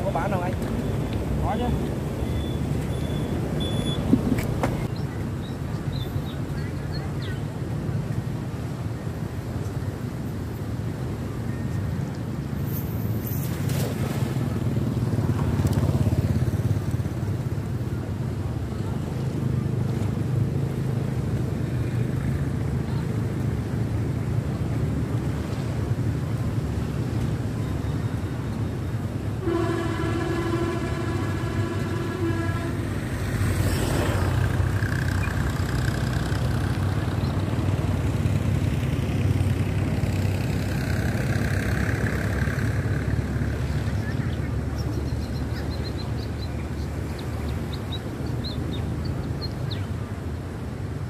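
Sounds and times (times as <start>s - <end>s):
road traffic rumble: 0.0s - 51.0s
wind: 0.0s - 51.0s
vehicle horn: 29.4s - 33.1s.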